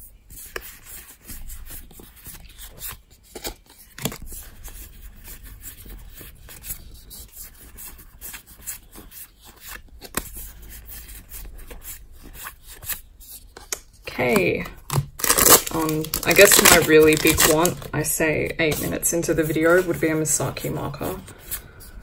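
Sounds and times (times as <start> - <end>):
trading cards flipping: 0.4 - 4.5, 5.2 - 17.9.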